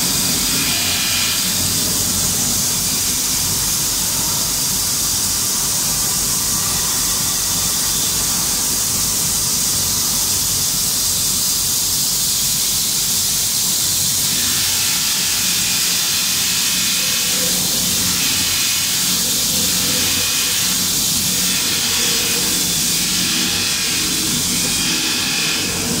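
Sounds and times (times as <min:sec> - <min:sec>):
belt sander grinding metal: 0:00.0 - 0:04.3, 0:14.2 - 0:26.0.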